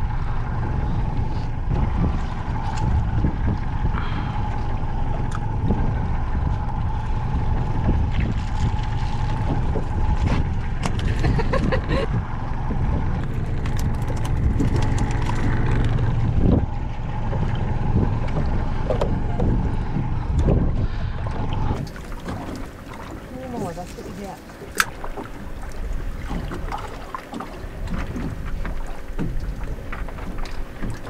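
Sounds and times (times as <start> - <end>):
water slapping against boat: 0.0 - 31.0
wind buffeting microphone: 0.0 - 31.0
gear clicking and knocking: 13.3 - 16.7.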